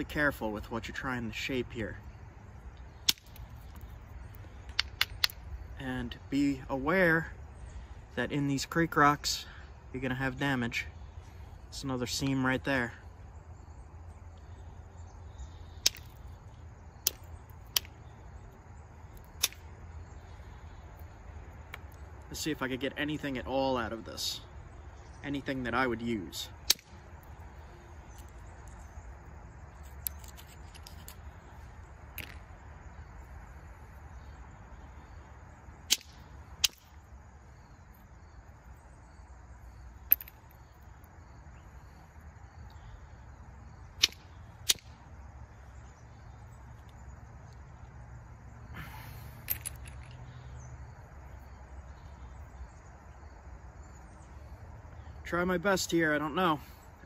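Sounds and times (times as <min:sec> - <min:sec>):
flint flakes snapping clicks: 0:03.0 - 0:05.5, 0:15.8 - 0:16.3, 0:17.0 - 0:18.0, 0:19.1 - 0:19.7, 0:26.6 - 0:27.3, 0:35.9 - 0:36.9, 0:44.0 - 0:44.9.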